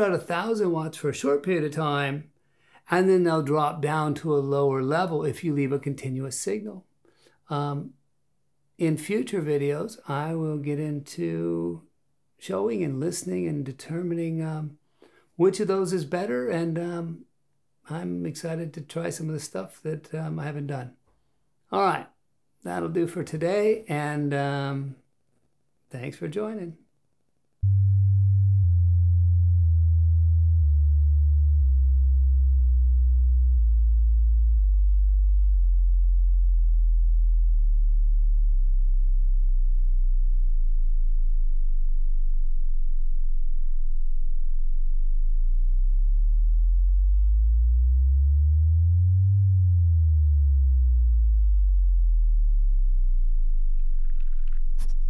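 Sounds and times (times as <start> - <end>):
deep sine bass tone: 27.6 - 55.0.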